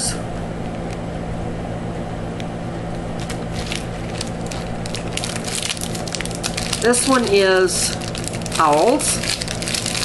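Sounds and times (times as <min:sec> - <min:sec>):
steady low hum: 0:00.0 - 0:10.0
cellophane wrapper crinkling: 0:03.1 - 0:10.0.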